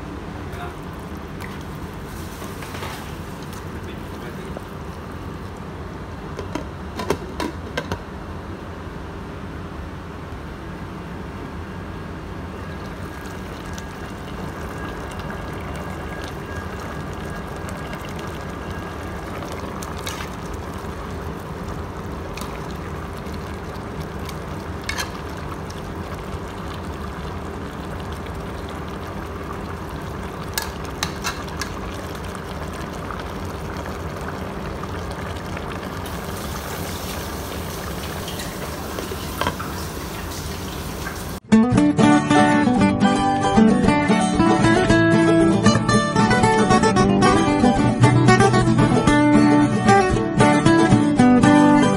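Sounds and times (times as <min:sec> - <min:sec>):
broth simmering and bubbling: 0:00.6 - 0:06.4, 0:12.5 - 0:41.4.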